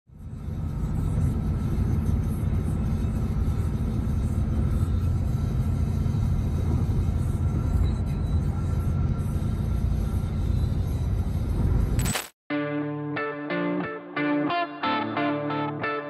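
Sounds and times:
car road and engine rumble: 0:00.1 - 0:12.2.

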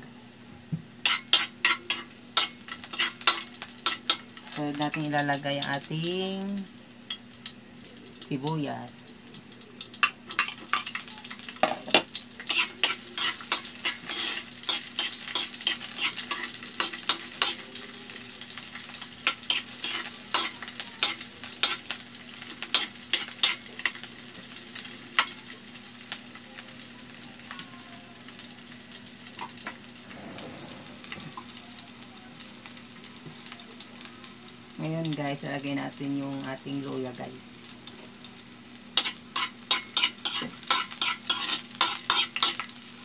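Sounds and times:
garlic and onion sizzling in oil: 0:00.0 - 0:43.0
metal utensil scraping a wok: 0:01.0 - 0:04.4, 0:12.4 - 0:17.7, 0:18.9 - 0:21.9, 0:30.0 - 0:31.8, 0:39.0 - 0:42.7.

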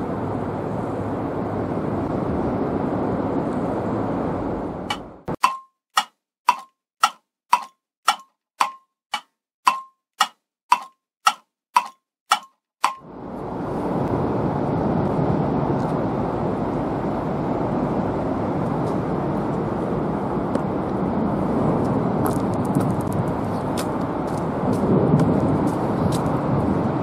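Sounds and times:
clock ticking: 0:04.9 - 0:13.0.

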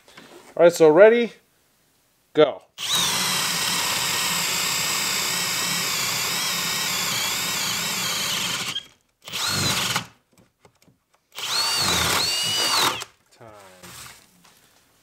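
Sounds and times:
drill trigger bursts: 0:02.8 - 0:10.2, 0:11.3 - 0:13.1
hammer drill boring into wood: 0:02.8 - 0:10.2, 0:11.3 - 0:13.2.

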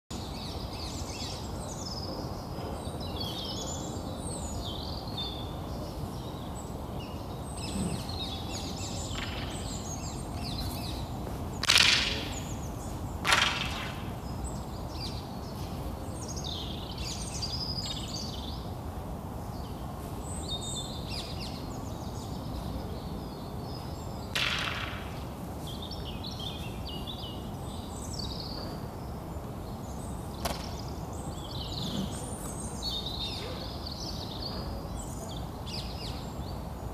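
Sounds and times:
small birds chirping: 0:00.1 - 0:18.7, 0:19.4 - 0:36.9.

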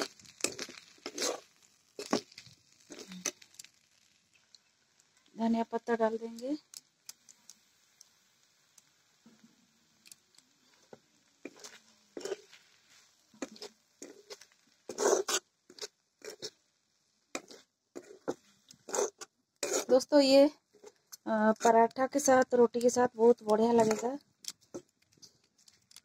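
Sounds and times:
metal spatula scraping metal pan: 0:00.0 - 0:02.3, 0:11.4 - 0:12.6, 0:13.4 - 0:16.6, 0:17.4 - 0:20.1, 0:23.6 - 0:24.2.

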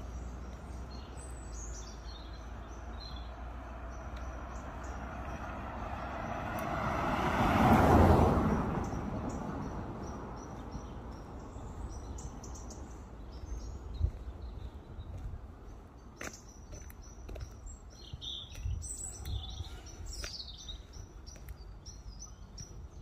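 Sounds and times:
small birds chirping: 0:00.0 - 0:06.8, 0:08.5 - 0:23.0
car driving past: 0:01.6 - 0:13.6.

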